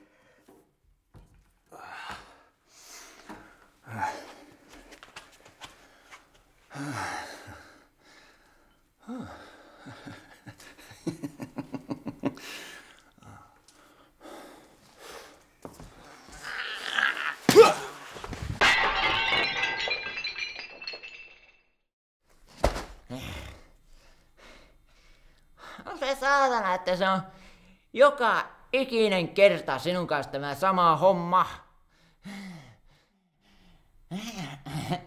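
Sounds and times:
man gasping and sighing: 1.6s - 4.7s, 6.7s - 10.4s, 12.4s - 15.4s, 23.0s - 25.9s, 31.9s - 35.0s.

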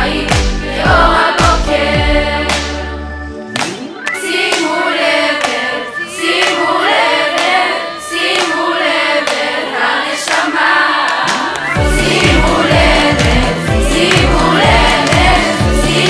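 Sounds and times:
girls' choir singing pop song: 0.0s - 16.0s
hand claps: 2.4s - 2.8s, 3.5s - 5.8s, 6.4s - 6.6s, 7.3s - 7.6s, 8.3s - 8.6s, 9.2s - 9.5s, 10.2s - 12.5s, 14.0s - 15.5s.

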